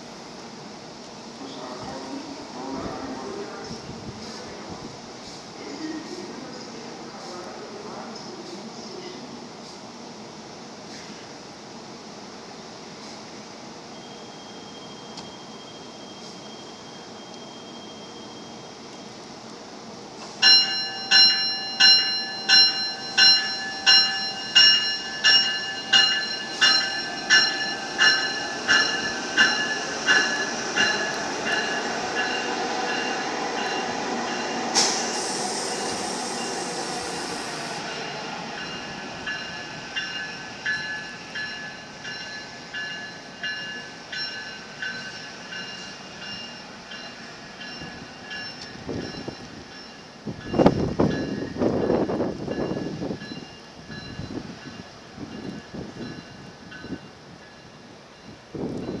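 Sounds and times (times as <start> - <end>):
train hiss: 0.0 - 59.0
train bell ringing: 13.9 - 19.0, 20.4 - 59.0
electric train running: 20.6 - 42.9.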